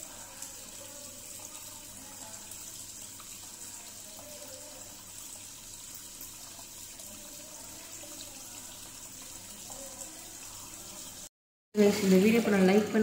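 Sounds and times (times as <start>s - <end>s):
aquarium filter water trickling: 0.0s - 13.0s.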